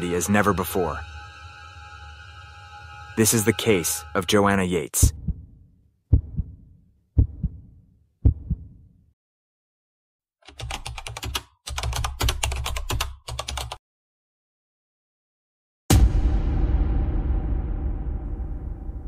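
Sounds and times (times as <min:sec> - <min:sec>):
heartbeat thuds: 0:05.0 - 0:08.8.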